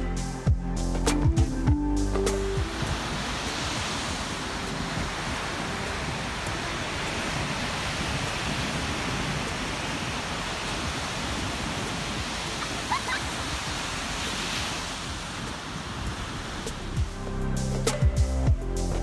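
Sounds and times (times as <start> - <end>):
ocean surf breaking on sand: 2.4 - 17.3.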